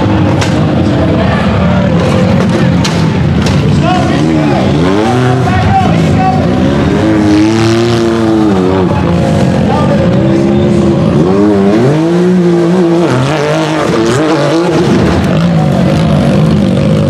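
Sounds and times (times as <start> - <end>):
utility vehicle engine revving: 0.0 - 17.0.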